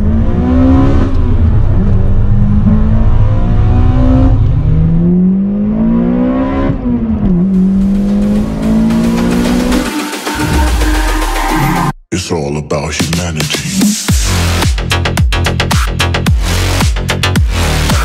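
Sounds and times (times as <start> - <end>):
car engine revving hard: 0.0 - 10.6.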